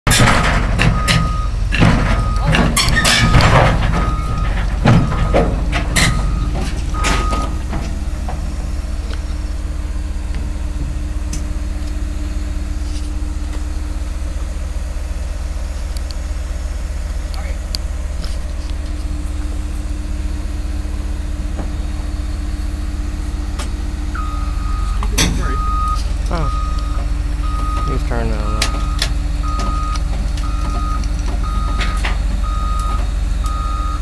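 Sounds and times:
steel tracks clanking: 0.1s - 9.4s
diesel engine idling: 0.1s - 34.0s
travel alarm beeping: 0.9s - 1.6s, 2.2s - 8.6s, 24.1s - 34.0s.

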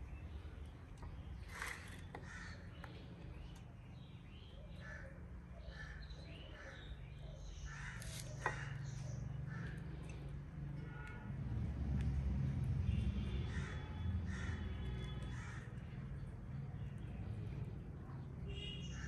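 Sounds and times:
crows cawing: 2.1s - 2.7s, 7.7s - 10.1s, 13.4s - 15.9s.

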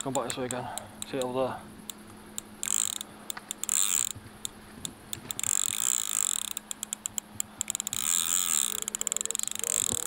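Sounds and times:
fishing reel drag clicking: 0.0s - 10.0s.

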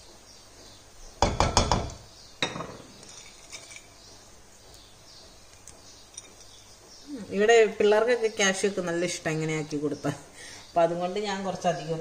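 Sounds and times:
spoon knocking on ceramic plate: 1.2s - 2.8s.

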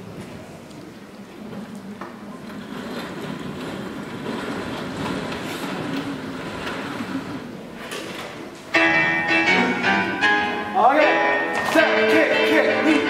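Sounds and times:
stage curtain rushing rumble: 2.4s - 8.9s.

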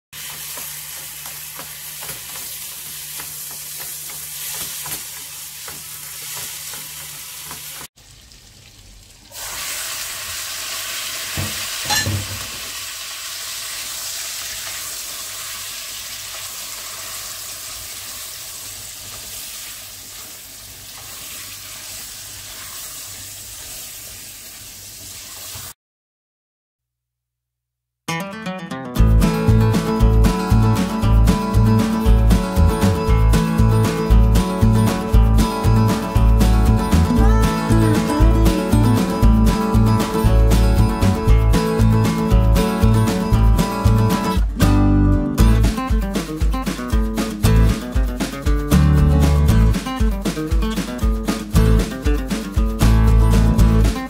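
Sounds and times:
food sizzling in oil: 0.2s - 25.8s.

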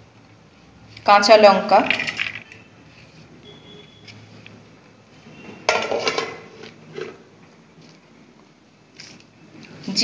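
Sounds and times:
utensils clinking on steel plate: 1.8s - 2.6s, 5.7s - 7.2s.

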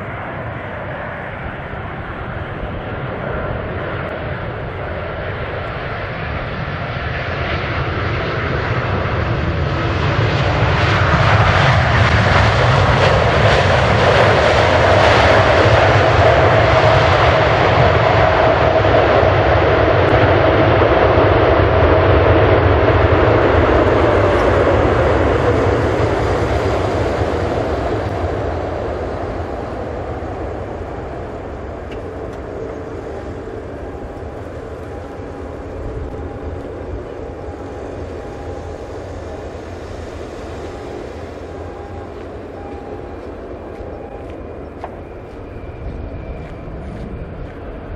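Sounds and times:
jet engines roaring: 0.0s - 47.9s.

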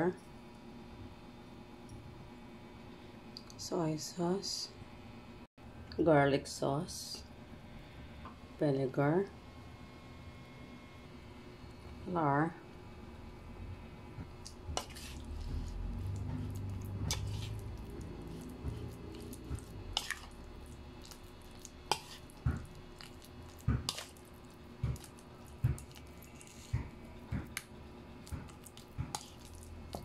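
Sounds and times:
spoon squishing wet meat: 14.4s - 30.0s.

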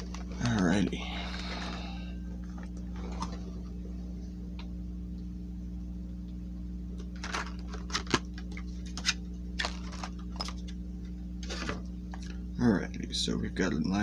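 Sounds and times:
box unpacking clicks and rustles: 0.0s - 0.9s, 7.2s - 10.7s
low hum: 0.0s - 14.0s.

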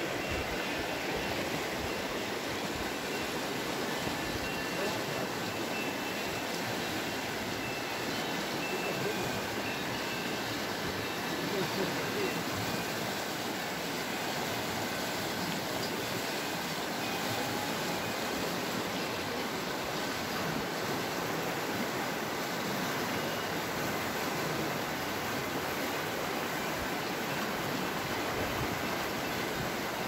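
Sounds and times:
river rushing over stones: 0.0s - 30.0s.

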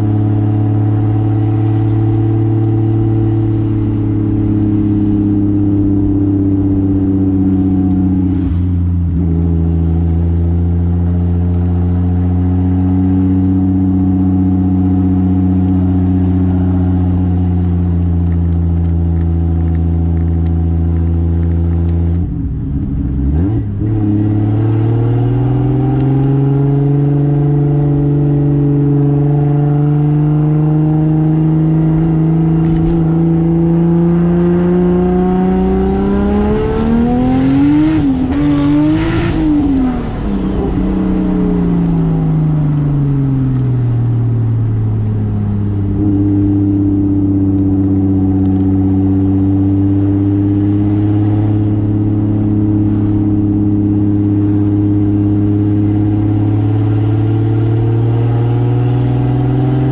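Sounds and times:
car engine running inside car: 0.0s - 59.9s
manual gear change: 31.9s - 33.3s.

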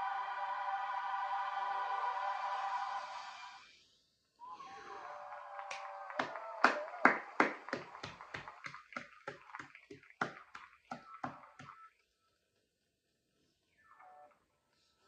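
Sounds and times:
person clapping hands: 5.2s - 11.9s.

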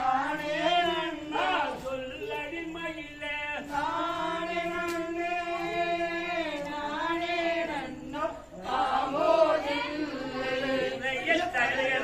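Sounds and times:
voices singing in unison: 0.0s - 12.0s.

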